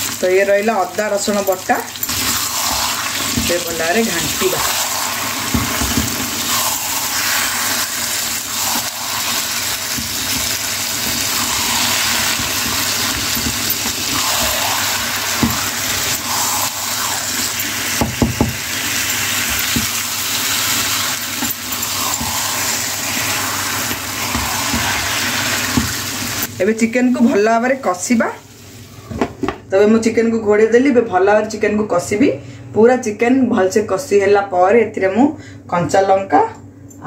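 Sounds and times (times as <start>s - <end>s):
chicken sizzling in oil: 0.0s - 29.0s.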